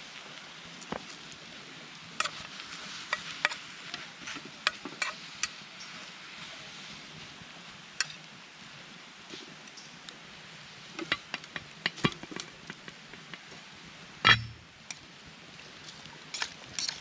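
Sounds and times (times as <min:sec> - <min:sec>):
sprouts sizzling in a frying pan: 0:00.0 - 0:17.0
utensil scraping a pan: 0:02.2 - 0:06.2, 0:10.9 - 0:13.4, 0:16.3 - 0:17.0.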